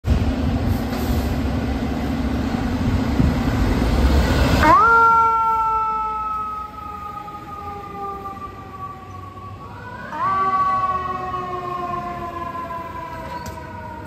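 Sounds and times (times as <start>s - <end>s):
fire truck engine rumble: 0.0s - 14.0s
siren: 4.5s - 14.0s.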